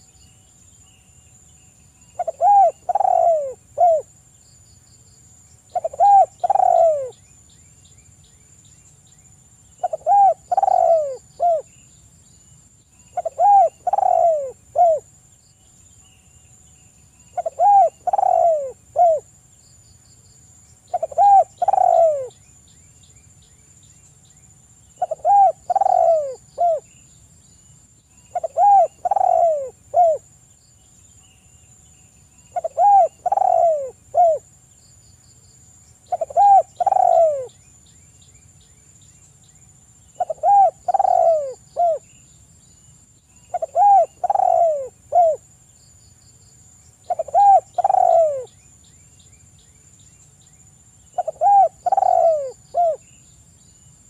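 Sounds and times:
faint high insect-like whine: 0.0 - 54.0
dove cooing: 2.2 - 4.1, 5.7 - 7.2, 9.8 - 11.7, 13.2 - 15.1, 17.4 - 19.3, 20.9 - 22.3, 25.0 - 26.9, 28.3 - 30.2, 32.6 - 34.5, 36.1 - 37.5, 40.2 - 42.1, 43.5 - 45.4, 47.1 - 48.5, 51.2 - 53.0.

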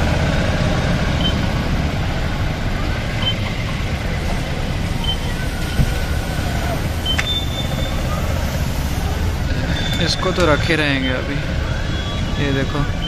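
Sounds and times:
vehicle engine rumbling: 0.0 - 13.0
short high beeps: 7.0 - 8.0.

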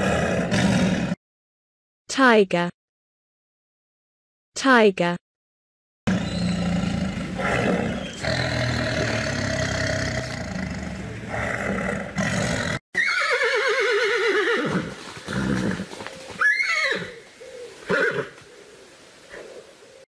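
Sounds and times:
tiger growling: 6.1 - 12.8
horse whinnying: 11.4 - 17.2, 17.8 - 18.4.

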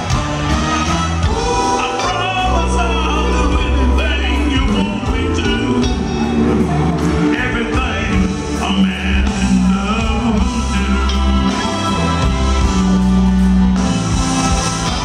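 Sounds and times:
live band music: 0.0 - 15.0
person singing: 1.2 - 12.2.

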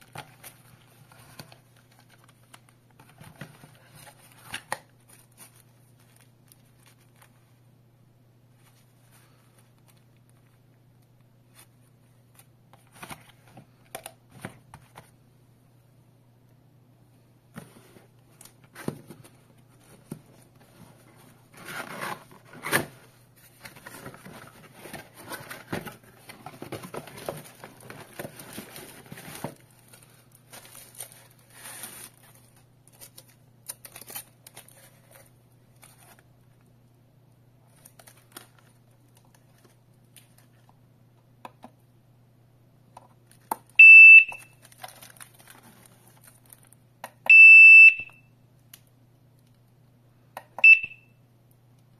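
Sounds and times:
cardboard and plastic rustling: 0.0 - 7.6, 17.5 - 36.3, 37.6 - 40.8, 44.5 - 46.8.

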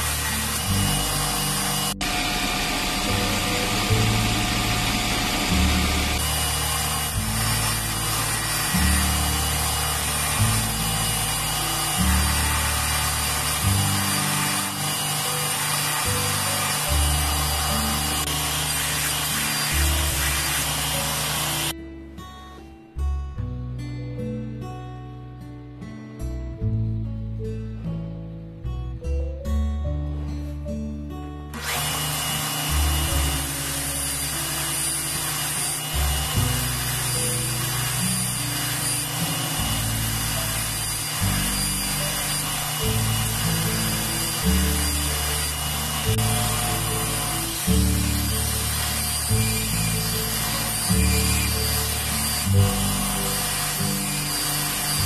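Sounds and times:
background music with bass: 0.0 - 6.4, 21.8 - 31.6
belt grinder grinding steel: 0.0 - 21.8, 31.6 - 55.0.

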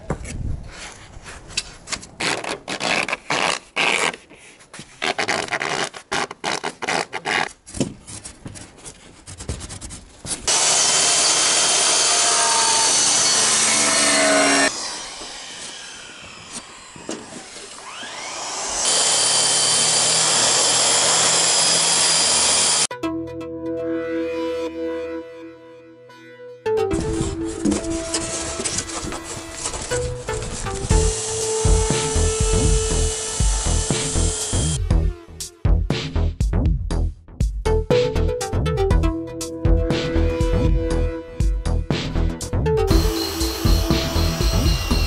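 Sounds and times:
foam boards scraping and knocking: 0.1 - 10.5
circular saw cutting foam: 10.5 - 22.9, 27.2 - 35.6, 42.9 - 45.0.

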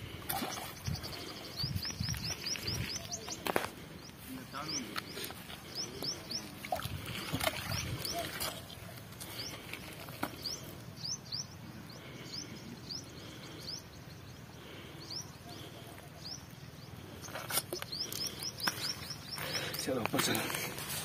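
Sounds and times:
small bird chirping: 15.0 - 20.4.

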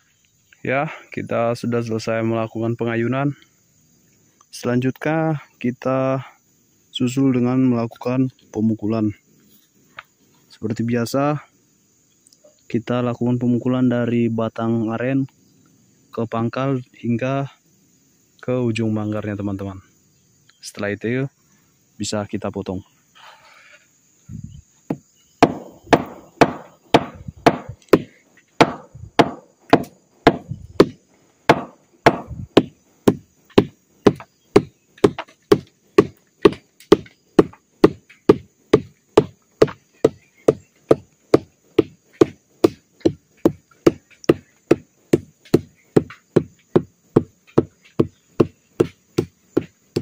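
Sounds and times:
mallet knocking on palm stalk: 24.9 - 50.0.

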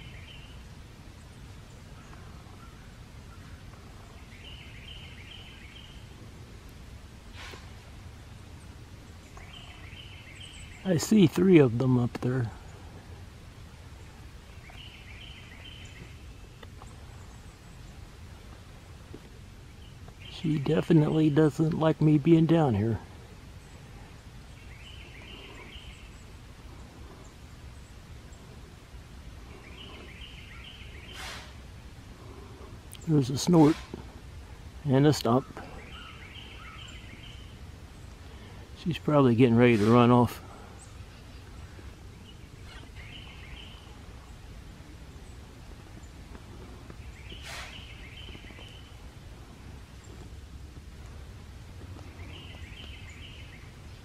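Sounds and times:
bird chirping: 0.0 - 6.2, 7.4 - 31.6, 32.2 - 50.4, 51.0 - 54.0
woodland ambience: 0.0 - 54.0
deer alarm snort: 7.3 - 7.8, 31.0 - 31.6, 33.5 - 34.0, 47.3 - 48.0
deer snorting: 31.1 - 32.8, 46.5 - 49.7.

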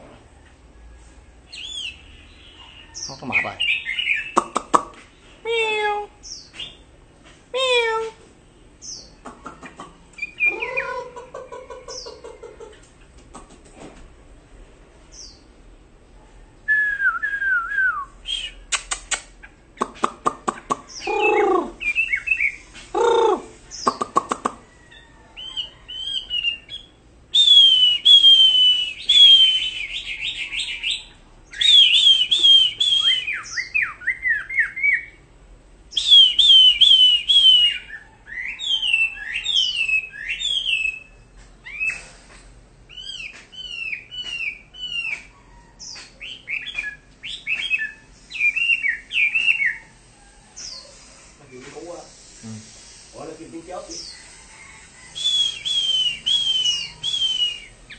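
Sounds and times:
bird whistled song: 1.5 - 4.6, 6.2 - 6.8, 10.2 - 11.0, 16.7 - 19.2, 20.9 - 24.3, 25.4 - 35.2, 35.9 - 42.1, 42.9 - 49.9, 55.1 - 57.9
low mewing bird calls: 8.8 - 13.4, 19.4 - 35.2, 53.7 - 57.9.

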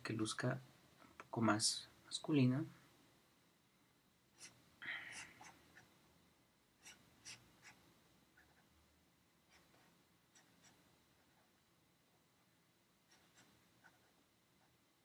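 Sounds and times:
drawing tool scratching: 4.4 - 5.9, 6.8 - 7.8, 9.5 - 11.6, 13.1 - 14.8.

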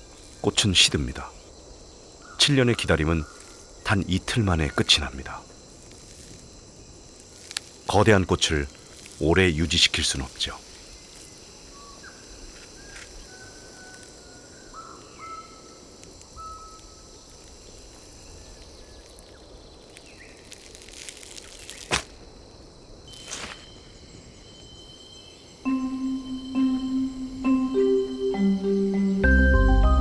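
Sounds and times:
high forest background hiss: 0.0 - 30.0
sharp snaps: 21.0 - 22.2.

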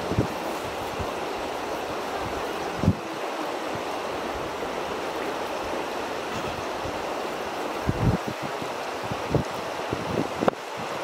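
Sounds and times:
river water rushing: 0.0 - 11.0
wind on microphone: 0.0 - 11.0.

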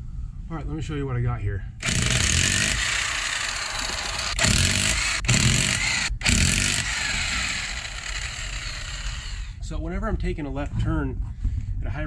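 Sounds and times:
impact wrench hammering: 1.8 - 9.5.

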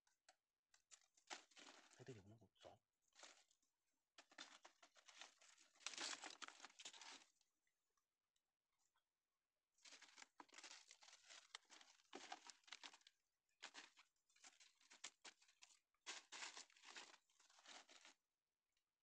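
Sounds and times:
dry leaf litter rustling: 1.3 - 2.0, 4.2 - 7.3, 9.9 - 18.2.

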